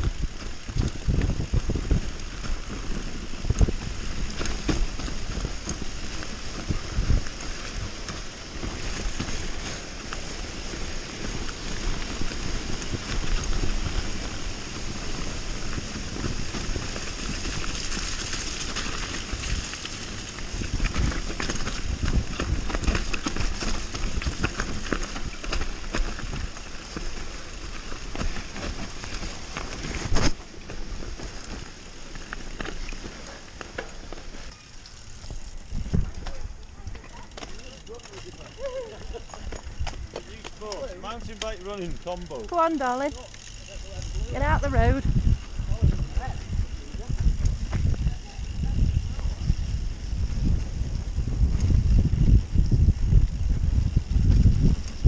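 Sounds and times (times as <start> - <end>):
wind on microphone: 0.0 - 4.3, 44.2 - 55.0
bike rattling over bumps: 0.0 - 55.0
bike tyres crunching over dirt: 0.0 - 55.0.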